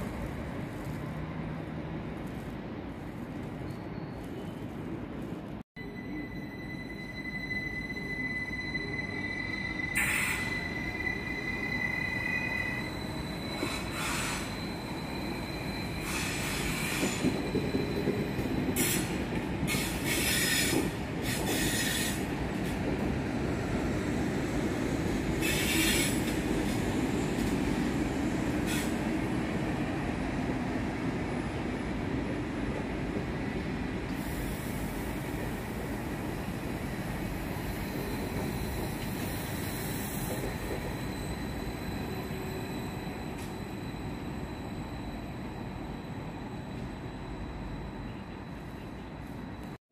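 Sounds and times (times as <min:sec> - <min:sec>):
train rail rumble: 0:00.0 - 0:49.8
high wheel squeals: 0:05.8 - 0:22.3, 0:37.5 - 0:48.5.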